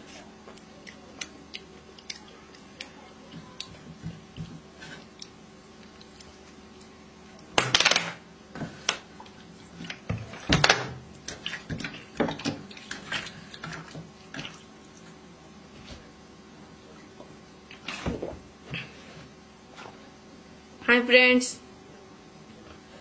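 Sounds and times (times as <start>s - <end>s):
hand mixing food on ceramic plate: 0.0s - 7.5s.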